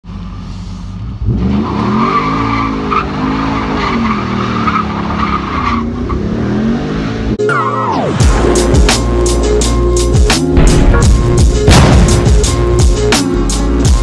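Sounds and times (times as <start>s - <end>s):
truck engine revving: 1.0s - 14.0s
tires squealing: 1.2s - 8.2s.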